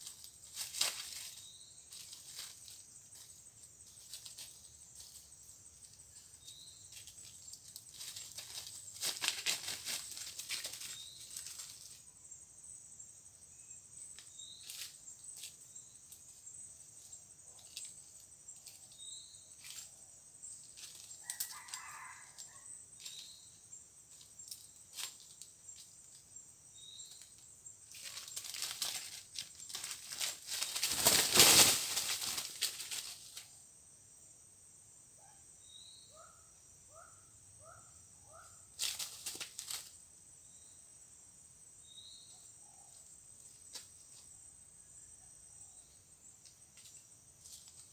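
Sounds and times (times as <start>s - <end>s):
rustling in dry leaves: 0.0s - 12.1s, 14.2s - 26.2s, 26.8s - 33.5s, 38.8s - 40.0s, 46.8s - 47.9s
high insect buzz: 0.0s - 34.7s
wing flapping: 6.9s - 12.0s, 27.9s - 33.4s.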